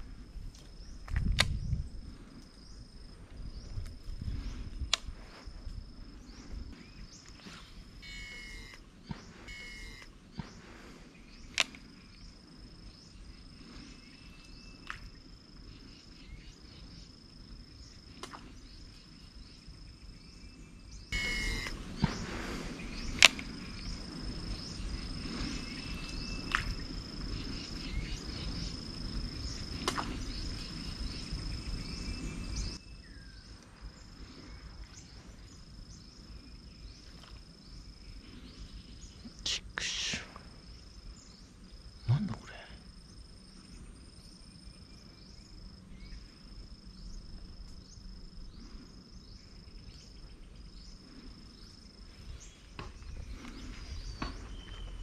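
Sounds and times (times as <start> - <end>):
insects trilling: 0.0 - 55.0
sharp click: 1.1 - 1.6, 11.5 - 11.8.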